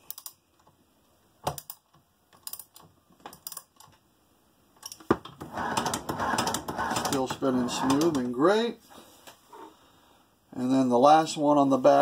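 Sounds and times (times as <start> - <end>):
sewing machine mechanism clattering: 5.4 - 8.2.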